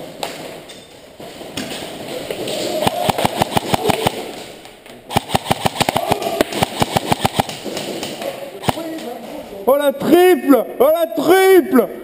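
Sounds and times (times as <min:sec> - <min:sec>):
airsoft gun rapid firing: 0:02.8 - 0:04.4, 0:05.1 - 0:09.1.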